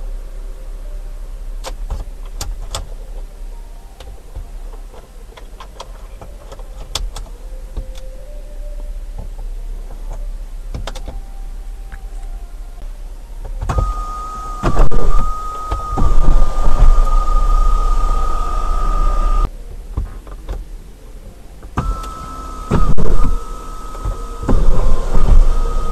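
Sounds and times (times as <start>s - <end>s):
sunroof motor whining: 0.0s - 25.9s.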